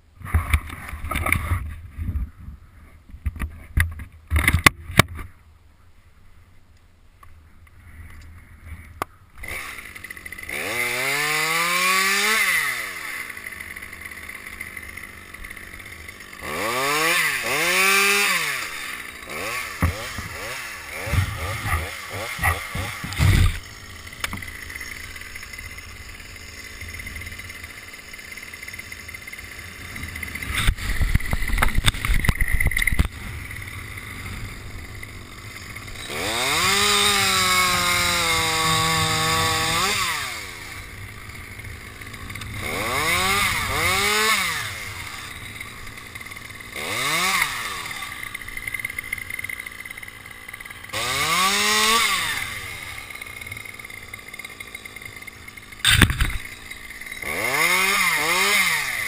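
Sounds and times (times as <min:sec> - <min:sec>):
chainsaw revving and cutting: 0:09.4 - 0:59.0.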